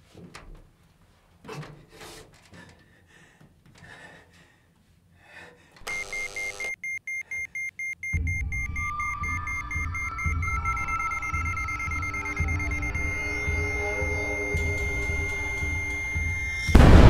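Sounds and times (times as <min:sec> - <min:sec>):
loud electronic buzz: 0:05.9 - 0:06.7, 0:11.5 - 0:17.0
rapid electronic beeping: 0:05.9 - 0:17.0
low rumbling music: 0:08.3 - 0:17.0.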